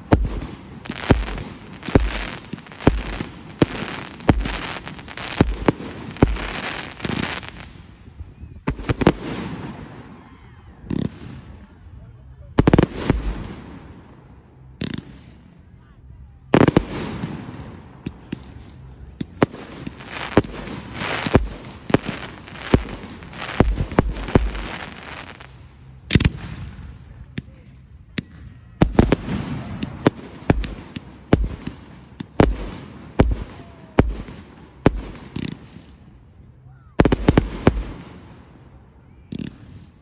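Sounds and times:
firework crackling: 0:00.0 - 0:08.0, 0:16.6 - 0:26.8, 0:37.0 - 0:38.4
firework shells bursting: 0:00.9 - 0:07.5, 0:19.8 - 0:25.5.

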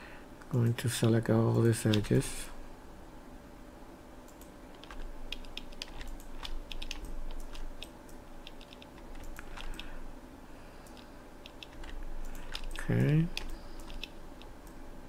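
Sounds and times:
keyboard and mouse clicking: 0:01.0 - 0:02.1, 0:04.3 - 0:09.9, 0:10.8 - 0:14.8.

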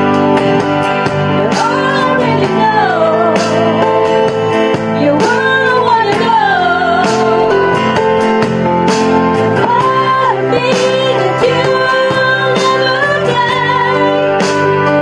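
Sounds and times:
karaoke backing track with guitar: 0:00.0 - 0:15.0
person singing: 0:01.4 - 0:04.0, 0:05.0 - 0:08.0, 0:09.6 - 0:15.0.

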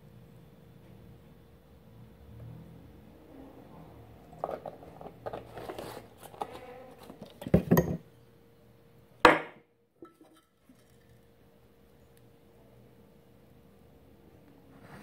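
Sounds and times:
carton and bowls clattering: 0:04.2 - 0:08.0, 0:10.0 - 0:11.1
heavy knocks on table: 0:09.3 - 0:09.6.

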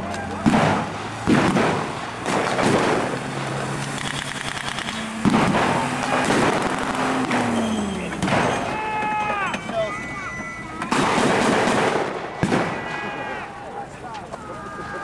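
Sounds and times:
vehicle engine running: 0:00.0 - 0:08.8
blank gunshots: 0:00.4 - 0:08.8, 0:10.9 - 0:13.1.

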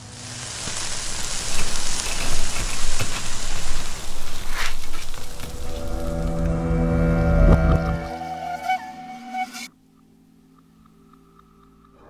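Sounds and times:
meat sizzling on a grill: 0:00.0 - 0:06.5.

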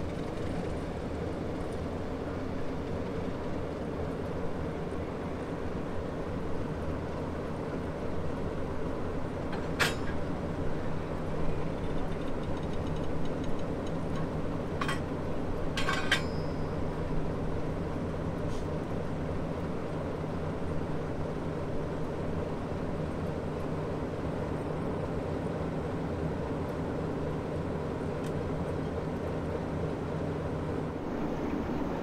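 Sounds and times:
sharp metallic clinks: 0:15.8 - 0:16.8.

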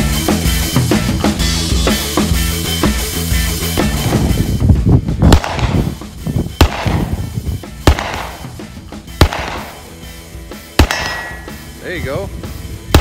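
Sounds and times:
music with drum beat: 0:00.0 - 0:13.0
pistol shots with echo: 0:05.3 - 0:06.0, 0:06.6 - 0:08.6, 0:09.2 - 0:10.0, 0:10.7 - 0:11.7.

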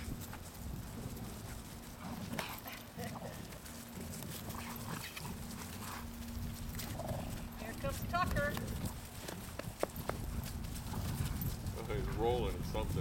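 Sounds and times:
dog noises: 0:00.0 - 0:12.4
leaves rustling: 0:00.0 - 0:13.0
paws scuffling: 0:00.0 - 0:13.0.

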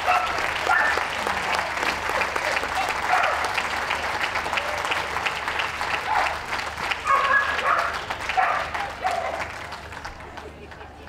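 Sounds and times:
dog barking: 0:00.0 - 0:01.0, 0:03.1 - 0:03.4, 0:06.1 - 0:06.4, 0:07.0 - 0:09.5
crowd applauding: 0:00.0 - 0:11.0.

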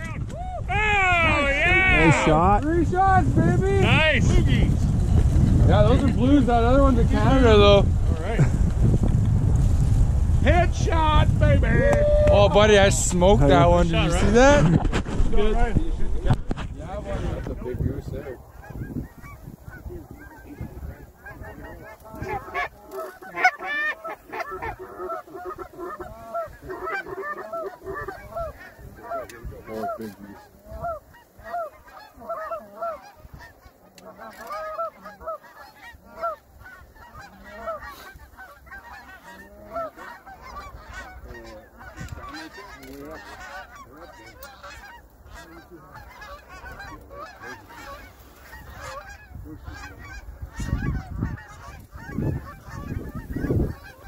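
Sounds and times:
geese honking: 0:00.8 - 0:03.2, 0:16.9 - 0:54.0.

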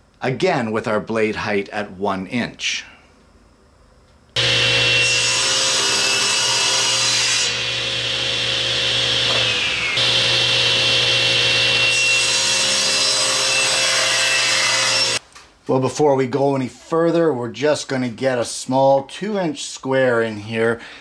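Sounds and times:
table saw cutting plastic: 0:04.4 - 0:15.2.

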